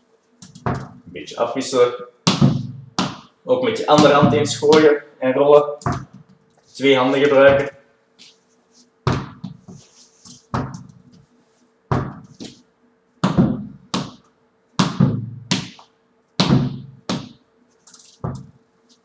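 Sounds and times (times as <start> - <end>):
tennis ball knocking: 11.9 - 12.6.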